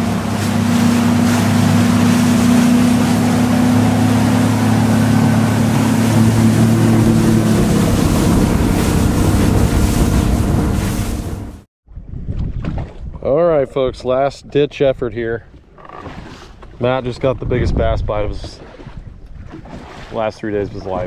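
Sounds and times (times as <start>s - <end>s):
outboard motor running: 0.0s - 11.7s
wind on microphone: 0.0s - 14.1s, 17.1s - 19.9s.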